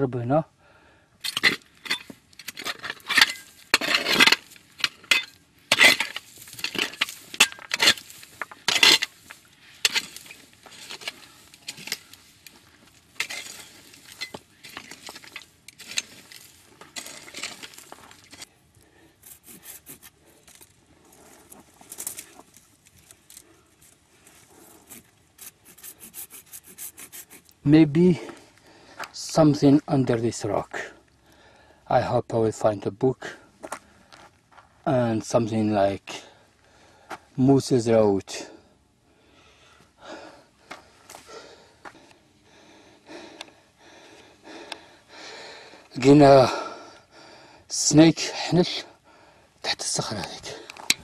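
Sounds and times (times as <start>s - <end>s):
digging tool scraping stony soil: 1.2s - 28.3s
metal clinking on stone: 1.3s - 9.2s, 13.2s - 16.4s.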